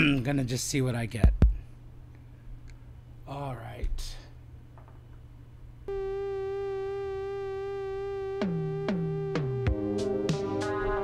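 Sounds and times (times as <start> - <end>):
electronic music from a phone: 5.9 - 11.0
held tone rich in overtones: 5.9 - 11.0.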